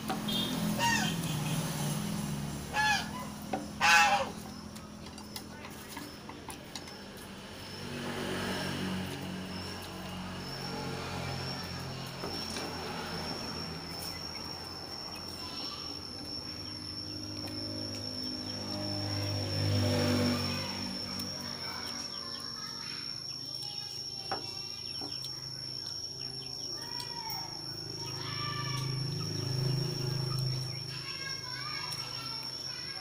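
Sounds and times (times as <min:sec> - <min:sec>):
high-pitched insect trill: 0:00.0 - 0:33.0
faint chirps: 0:00.2 - 0:03.5, 0:04.2 - 0:33.0.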